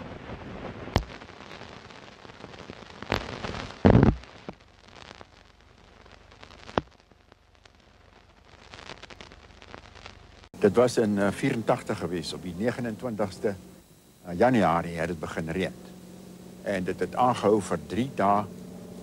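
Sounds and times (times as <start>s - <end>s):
old film hiss and crackle: 0.0s - 19.0s
sharp pops: 0.6s - 1.6s, 2.4s - 5.3s, 6.6s - 7.0s.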